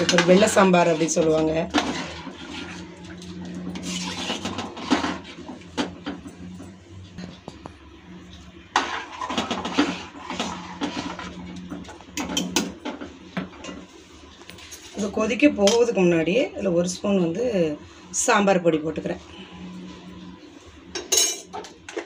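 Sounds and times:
metal ladle scraping a pan: 0.0 - 6.2, 8.7 - 13.9
steady low hum: 0.0 - 22.0.

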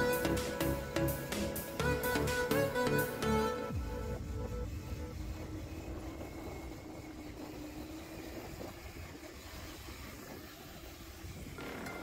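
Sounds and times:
music: 0.0 - 6.8
faint steady hum: 0.0 - 12.0
wind and tyre rumble: 0.0 - 12.0.

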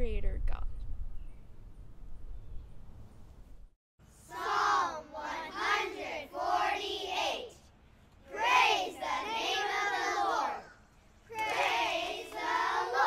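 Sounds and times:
children reciting in unison: 4.2 - 7.6, 8.3 - 13.0.

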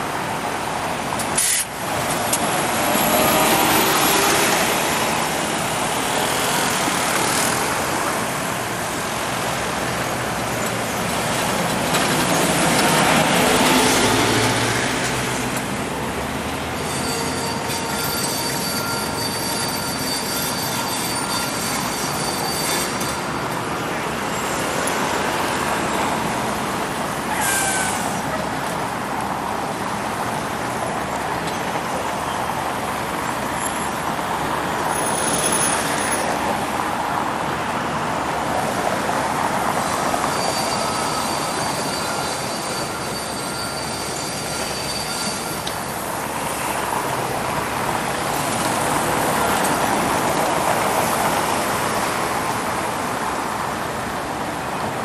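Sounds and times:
traffic on wet road: 0.0 - 55.0
falling squeal: 16.7 - 23.6, 27.3 - 28.4, 39.8 - 46.8
thin high squeal: 16.8 - 23.6, 27.3 - 28.3, 40.1 - 46.8.

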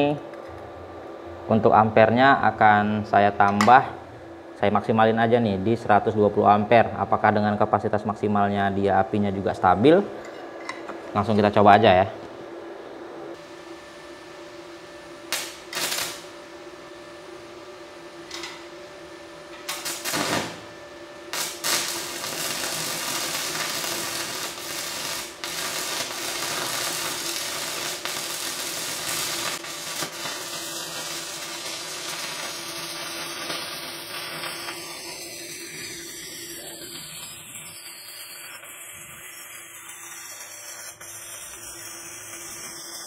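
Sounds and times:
welding arc crackling: 15.0 - 43.0.

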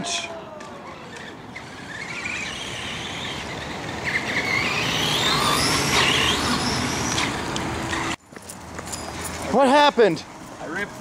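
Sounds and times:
electric rc car motor whining: 0.8 - 8.2.

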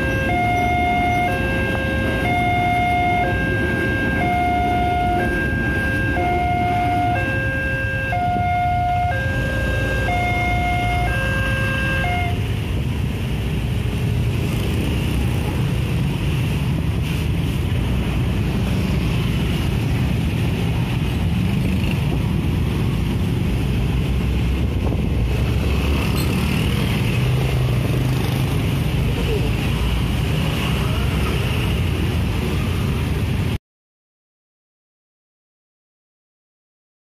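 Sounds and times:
level crossing two-tone alarm: 0.0 - 12.4
motorcycle and car engines rumbling: 0.0 - 33.6
wind on microphone: 16.5 - 28.8.

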